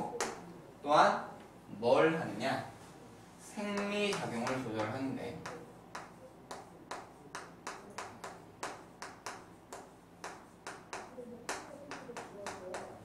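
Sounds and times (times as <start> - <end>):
chalk tapping and scratching on chalkboard: 3.5 - 13.0.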